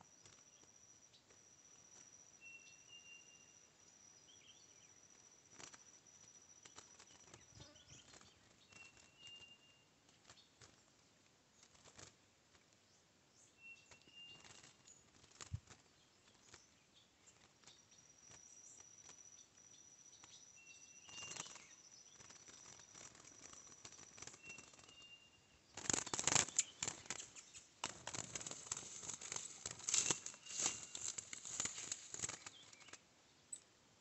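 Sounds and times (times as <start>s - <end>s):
faint steady high tone: 0.0s - 10.0s, 16.5s - 25.6s
bird wing flutters: 6.6s - 11.0s, 11.6s - 12.6s, 13.9s - 16.6s, 21.0s - 33.0s.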